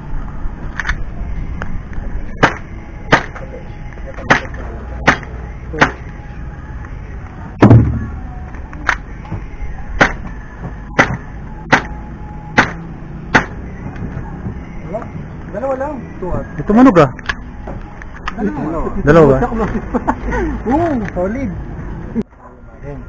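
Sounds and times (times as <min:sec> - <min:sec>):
airsoft pistol shots: 0:02.4 - 0:03.4, 0:12.6 - 0:13.6
heavy thud with ring: 0:07.6 - 0:08.2.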